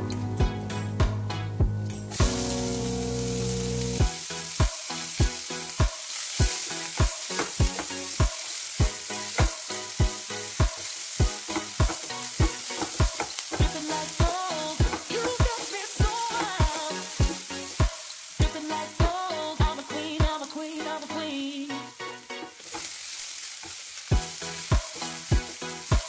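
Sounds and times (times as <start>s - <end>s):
background music with steady beat: 0.0s - 23.0s, 24.1s - 26.0s
onions sizzling in hot oil: 2.1s - 26.0s
spatula stirring in pan: 3.9s - 20.5s, 22.6s - 26.0s.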